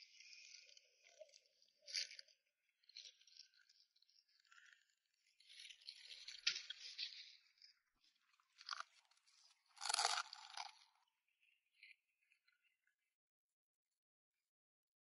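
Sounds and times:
monkey chewing crunchy food: 0:09.8 - 0:10.7.

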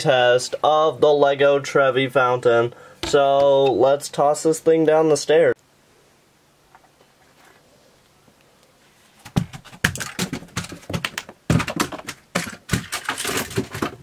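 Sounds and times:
plastic bricks clattering on stairs: 0:09.2 - 0:14.0.

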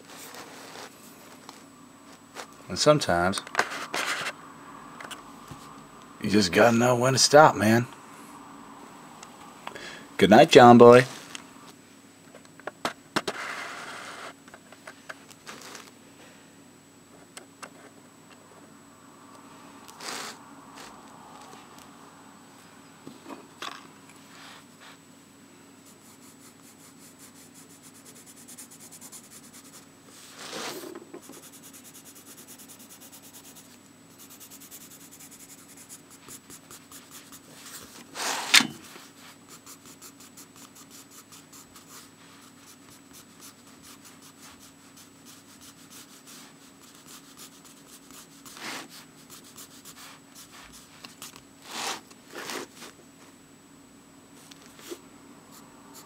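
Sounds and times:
faint steady hum: 0:00.0 - 0:56.0
pen scratching on paper: 0:25.9 - 0:29.9, 0:30.5 - 0:52.7.

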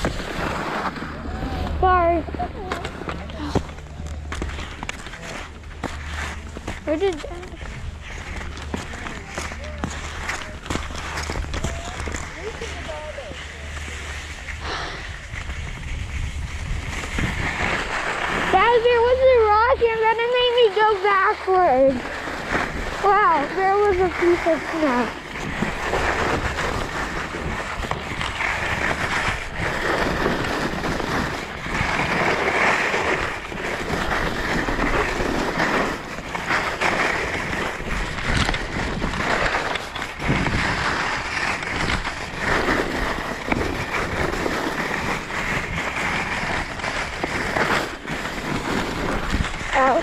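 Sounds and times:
skis knocking on clumps: 0:00.0 - 0:50.0
skis scraping over snow: 0:00.0 - 0:50.0
wind on microphone: 0:14.3 - 0:50.0.

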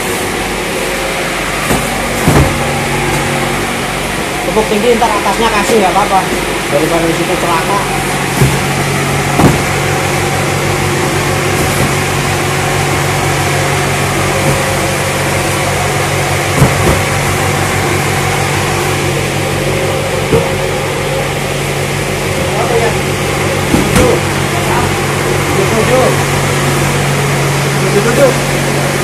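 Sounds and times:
machine drone: 0:00.0 - 0:29.0
cardboard cartons thumping: 0:01.0 - 0:04.1, 0:08.1 - 0:21.1, 0:22.3 - 0:26.7.

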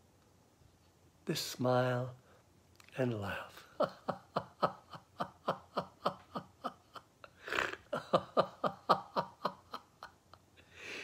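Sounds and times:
man laughing: 0:03.6 - 0:10.4
man breathing in: 0:10.6 - 0:11.0.

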